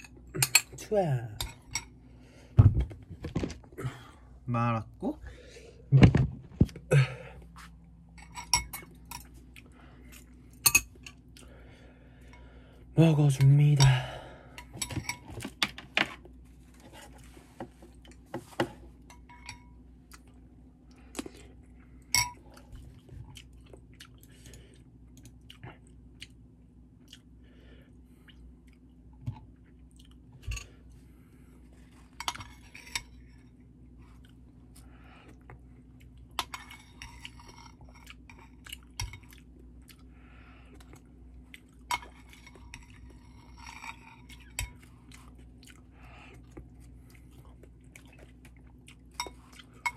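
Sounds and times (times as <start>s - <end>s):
person chewing rice: 8.8s - 11.6s, 20.0s - 32.7s, 33.6s - 49.9s.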